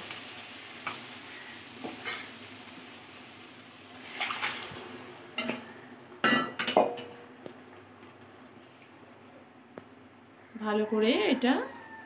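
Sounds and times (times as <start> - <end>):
sizzling in a pan: 0.0 - 9.1.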